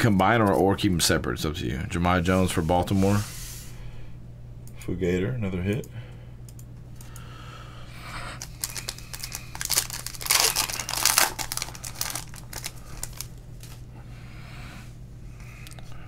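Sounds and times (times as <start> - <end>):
low electrical hum: 0.0 - 16.0
wrapper crinkling and tearing: 8.4 - 13.8.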